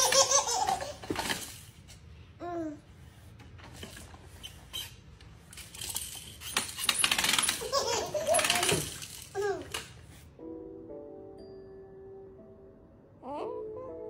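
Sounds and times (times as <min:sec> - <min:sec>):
plastic baby walker rattling: 0:00.0 - 0:01.7, 0:05.5 - 0:10.0.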